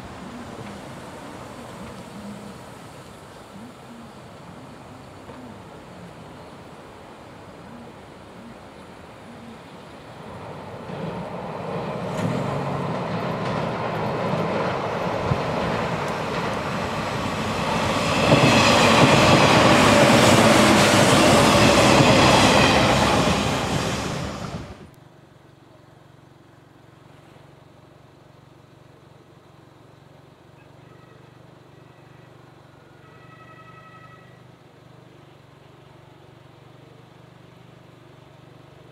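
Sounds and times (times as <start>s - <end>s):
electric train passing: 0.0s - 25.0s.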